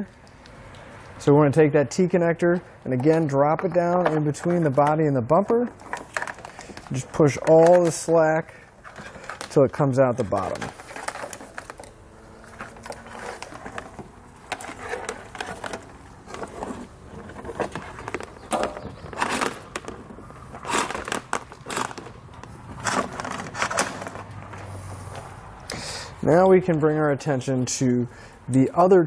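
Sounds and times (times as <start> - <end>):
wiring harness clicking and rustling: 2.5 - 25.2
wire scraping against bumper: 8.8 - 25.5.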